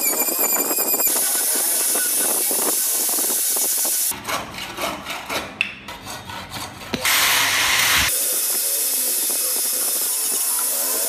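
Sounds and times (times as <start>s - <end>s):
rotary tool sanding wood: 0.0s - 11.0s
hand tool scraping wood: 4.1s - 7.3s.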